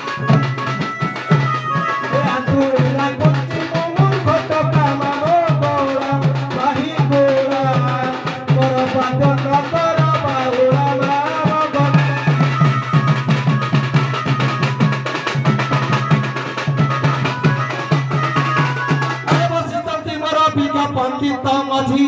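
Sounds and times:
wavering melody line: 0.0 - 4.8, 11.6 - 20.1
barrel drums beaten: 0.0 - 20.2.

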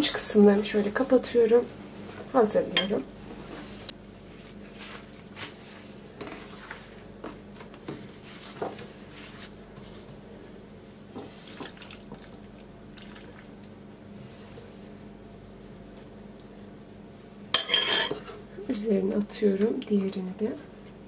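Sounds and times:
faint steady hum: 0.0 - 21.0
pastry sheets rustling: 3.5 - 10.1.

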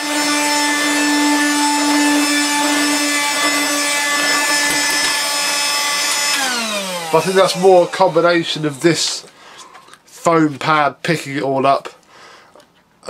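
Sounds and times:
floor sweeper motor whine: 0.0 - 8.3.

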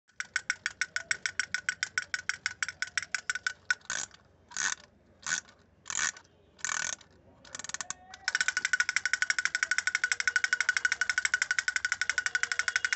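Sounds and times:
toy drum tapping: 0.1 - 4.1, 6.8 - 12.9
wind-up key ratcheting: 0.1 - 12.9.

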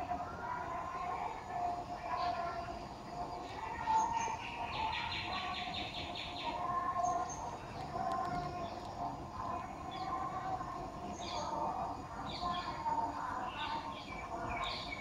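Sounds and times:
bird rapid pulsing trill: 0.2 - 15.0
birds wavering calls: 3.4 - 15.0.

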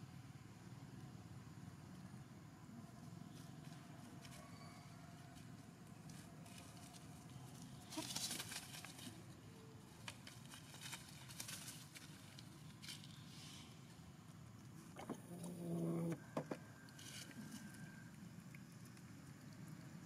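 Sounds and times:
faint outdoor hum: 0.0 - 20.0
soft clicks and crackles: 16.8 - 20.0.

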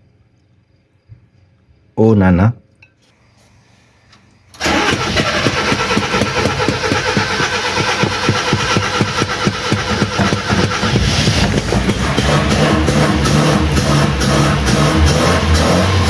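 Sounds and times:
starter motor cranking engine: 4.6 - 16.0.

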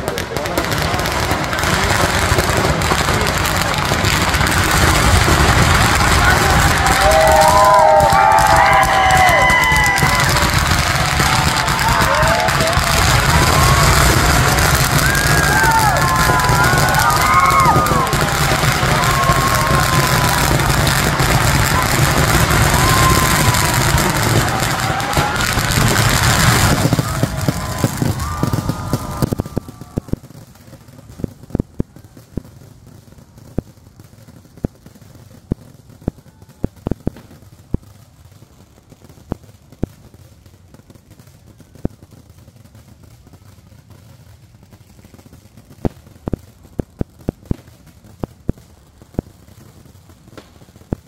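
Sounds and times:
fireworks explosions and bangs: 0.0 - 51.0.

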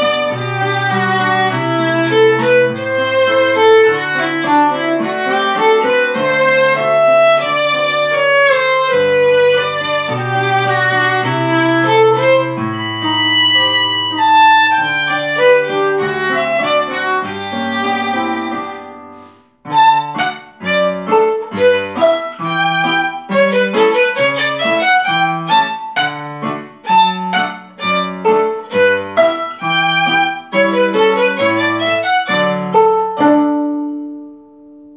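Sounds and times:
lower accompaniment: 0.0 - 25.6
violin melody: 0.0 - 34.3.

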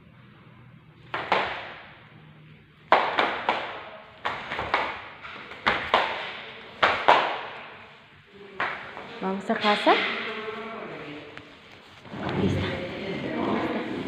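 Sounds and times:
sharp taps echoing in hall: 1.0 - 7.9, 8.5 - 10.4.

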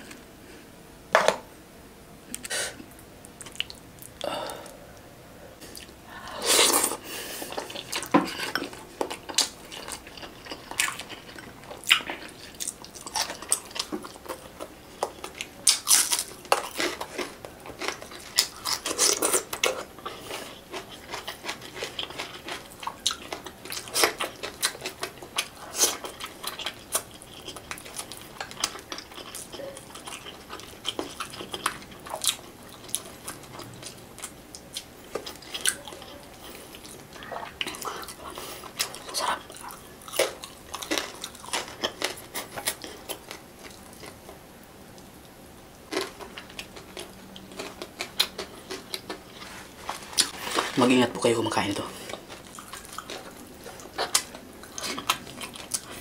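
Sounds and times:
wet chewing and lip smacks: 2.3 - 4.2.

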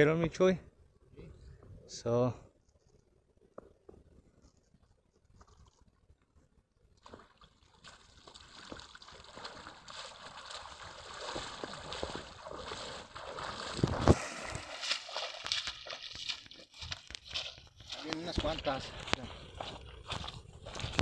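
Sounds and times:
man wading through shallows: 7.0 - 21.0
water sloshing and splashing: 7.0 - 21.0.

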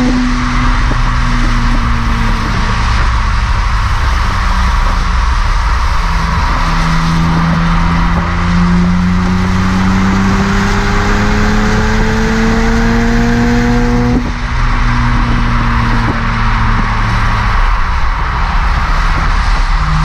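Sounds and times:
car exhaust accelerating: 0.0 - 20.0
wind and road rush: 0.0 - 20.0.

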